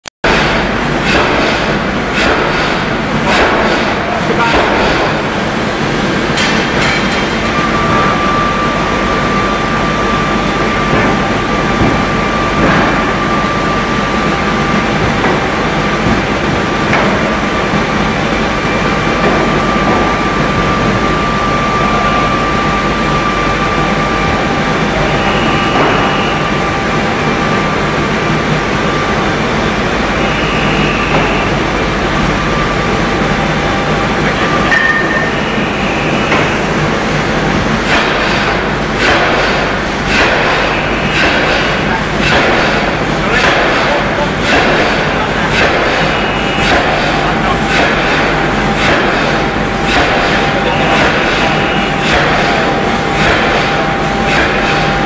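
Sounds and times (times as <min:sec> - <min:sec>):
din of forging machinery: 0:00.2 - 0:55.0
thin steady whine: 0:05.4 - 0:37.8, 0:45.1 - 0:55.0.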